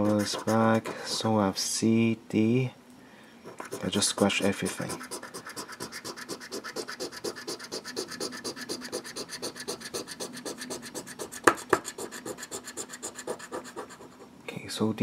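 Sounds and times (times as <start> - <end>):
coin scratching lottery ticket: 0.0 - 1.2, 3.5 - 14.1.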